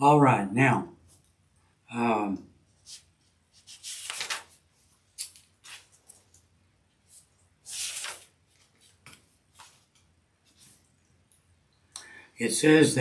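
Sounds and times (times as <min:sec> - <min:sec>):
book pages rustling: 0:02.8 - 0:11.0.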